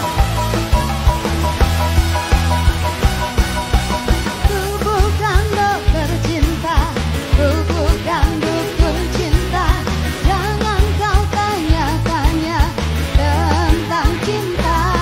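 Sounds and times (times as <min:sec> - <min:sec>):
heavy steady drum beat: 0:00.0 - 0:15.0
woman singing pop song: 0:04.4 - 0:15.0.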